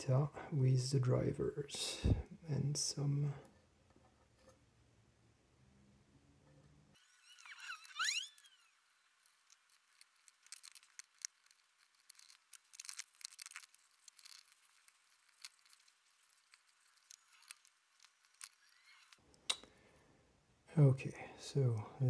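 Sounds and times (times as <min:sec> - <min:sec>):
squeaky chirp: 0:07.0 - 0:09.1.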